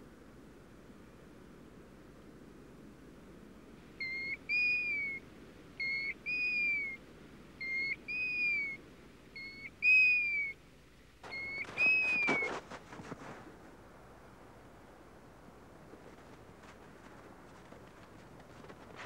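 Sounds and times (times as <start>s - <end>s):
plover whistling calls: 4.0s - 5.2s, 5.8s - 7.0s, 7.6s - 8.8s, 9.4s - 10.6s, 11.2s - 12.6s
crackling rustle: 11.2s - 19.0s.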